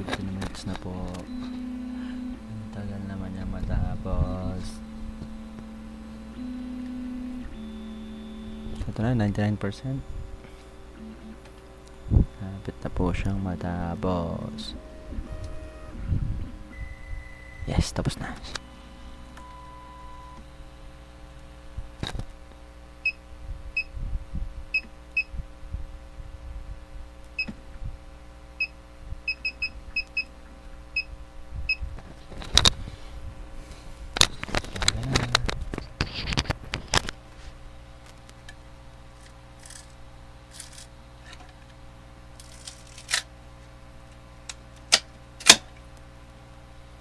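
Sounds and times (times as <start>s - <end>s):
printer fans humming: 0.0s - 22.2s, 32.0s - 47.0s.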